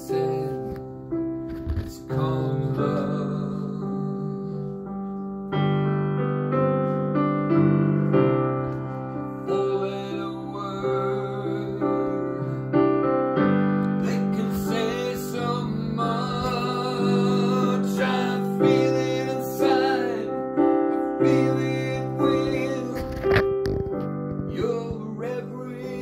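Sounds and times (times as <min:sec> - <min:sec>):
man singing: 0:00.0 - 0:05.2, 0:09.3 - 0:12.8, 0:13.8 - 0:23.5, 0:24.4 - 0:26.0
digital piano chords: 0:00.0 - 0:26.0.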